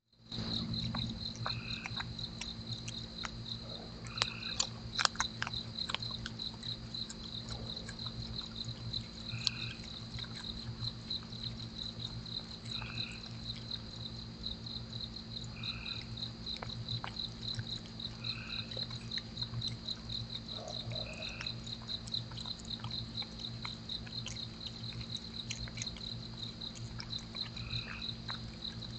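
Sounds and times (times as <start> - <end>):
insects chirping: 0.1 - 28.9
steady low hum: 0.1 - 28.9
frog calling: 3.6 - 5.1, 15.5 - 16.1, 18.2 - 19.1, 19.9 - 21.7.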